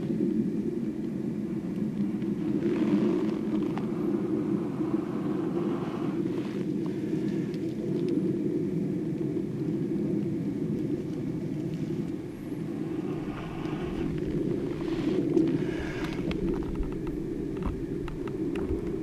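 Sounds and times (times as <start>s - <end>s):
faint fire crackles: 0.0s - 19.0s
breath blowing on tinder: 2.5s - 8.0s, 11.8s - 19.0s.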